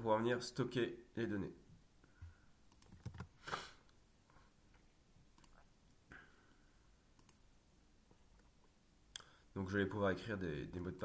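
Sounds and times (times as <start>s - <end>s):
faint computer clicks: 5.4s - 5.7s, 7.2s - 7.4s.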